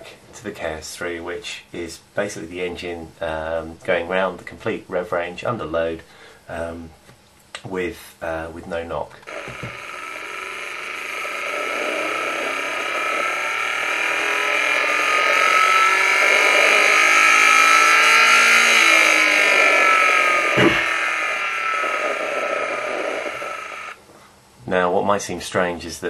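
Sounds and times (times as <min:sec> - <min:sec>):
engine noise rising and falling: 0:09.3 - 0:24.0.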